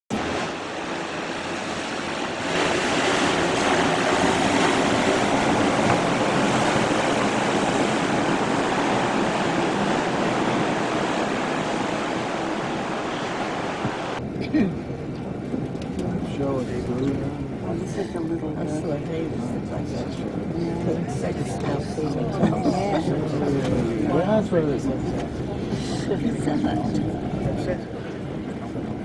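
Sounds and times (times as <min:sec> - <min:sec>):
rushing water: 0:00.1 - 0:29.0.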